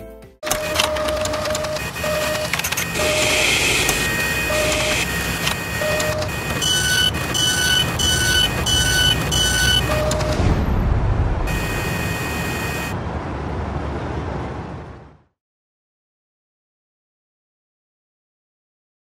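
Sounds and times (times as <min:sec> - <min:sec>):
short blips: 0:00.4 - 0:10.5
electronic beeps: 0:00.4 - 0:10.6, 0:11.5 - 0:13.0
mechanical whirring and clattering: 0:00.4 - 0:10.8.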